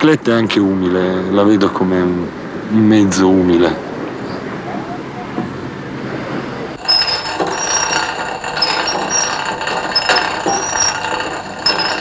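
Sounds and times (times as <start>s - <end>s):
short high squeaks: 6.7s - 12.0s
bicycle chain running over sprockets: 6.8s - 12.0s.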